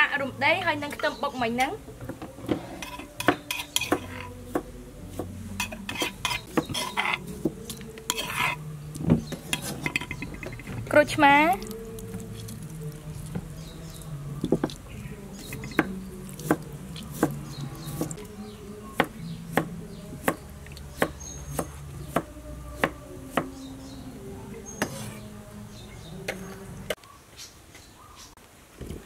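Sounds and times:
knife chopping on wooden board: 0:03.2 - 0:05.3, 0:15.5 - 0:18.2.

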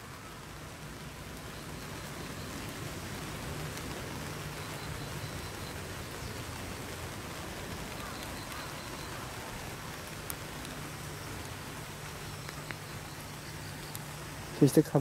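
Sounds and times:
even hiss: 0:00.0 - 0:15.0.

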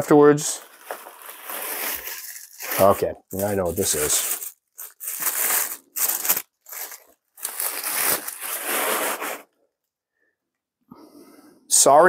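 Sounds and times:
tissue paper crinkling: 0:00.6 - 0:09.5.

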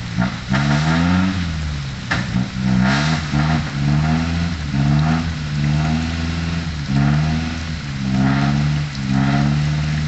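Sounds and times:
truck diesel engine revving: 0:00.0 - 0:10.0.

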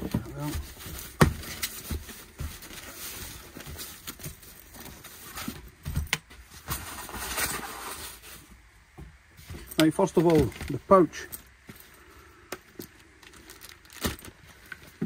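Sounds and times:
handling thumps: 0:00.0 - 0:02.9
plastic bag rustling: 0:00.0 - 0:08.7, 0:12.7 - 0:15.0.

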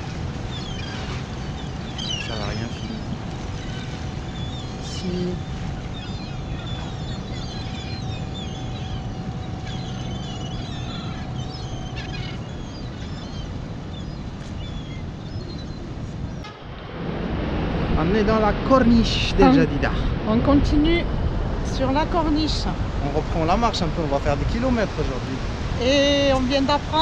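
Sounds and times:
gulls calling: 0:00.0 - 0:16.8, 0:18.6 - 0:20.0
boat motor humming: 0:00.0 - 0:27.0
wind and sea rumble: 0:00.0 - 0:27.0.

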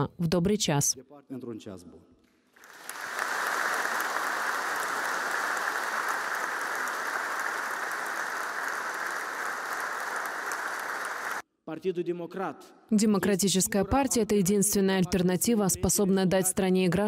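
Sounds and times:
audience applauding: 0:02.6 - 0:11.4.

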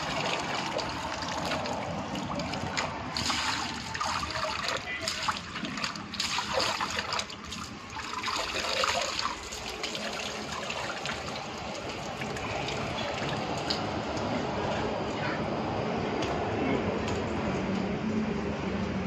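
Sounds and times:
water splashing in a tub: 0:00.0 - 0:14.4
water trickling and dripping: 0:00.0 - 0:14.4.

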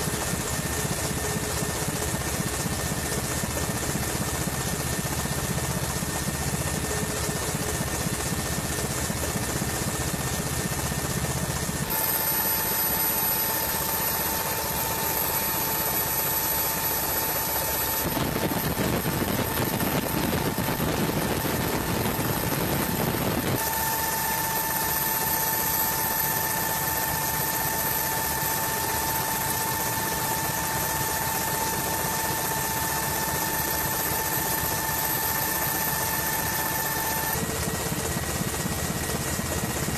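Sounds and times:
helicopter rotor and engine: 0:00.0 - 0:39.9
high-pitched whine: 0:10.2 - 0:39.9.

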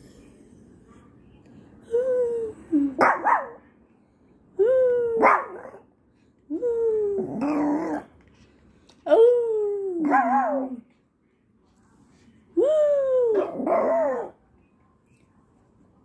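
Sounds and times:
small dog howling and yelping: 0:05.0 - 0:05.8, 0:13.0 - 0:14.4.

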